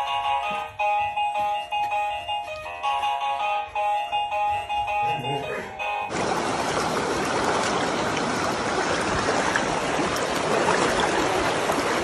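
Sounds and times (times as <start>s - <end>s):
creek rushing over stones: 6.1s - 12.0s.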